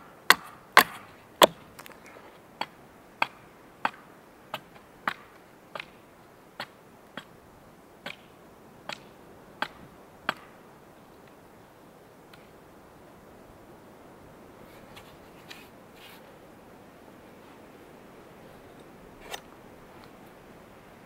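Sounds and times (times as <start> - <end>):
axe chopping wood: 0.3 - 1.9, 2.6 - 6.0, 8.0 - 8.3, 8.9 - 10.6.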